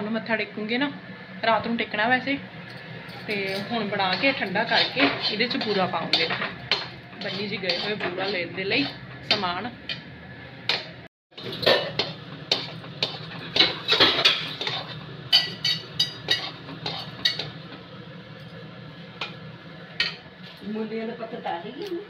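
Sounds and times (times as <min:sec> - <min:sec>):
metal spoon scraping steel pan: 0:03.2 - 0:10.0, 0:11.4 - 0:17.5.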